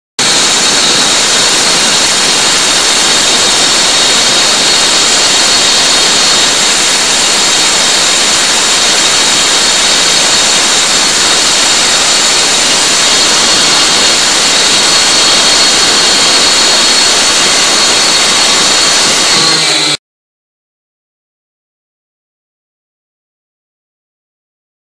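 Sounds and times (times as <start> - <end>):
cut-off saw grinding through steel: 0.2 - 20.0.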